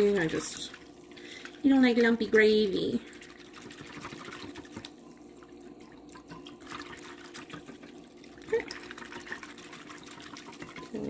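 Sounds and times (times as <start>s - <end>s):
whisk stirring liquid: 3.0s - 11.0s.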